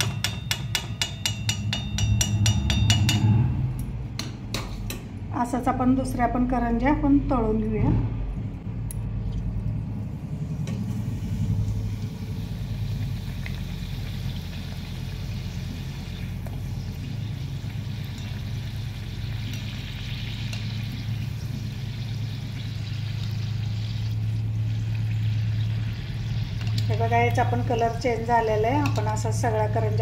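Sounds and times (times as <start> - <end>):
wire strainer clinking against pan: 0.0 - 3.3
low steady hum: 0.0 - 30.0
pastry sizzling in hot oil: 10.8 - 30.0.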